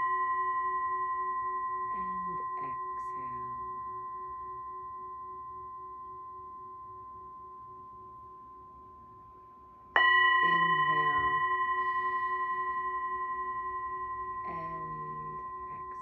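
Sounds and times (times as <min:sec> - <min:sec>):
singing bowl ringing: 0:00.0 - 0:16.0
wooden striker hitting bowl: 0:10.0 - 0:13.2.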